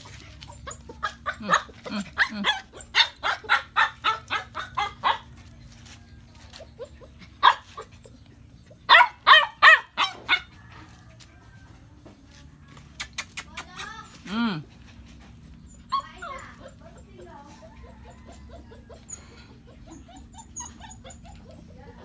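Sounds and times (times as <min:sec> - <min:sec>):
dog barking: 0:08.9 - 0:10.5.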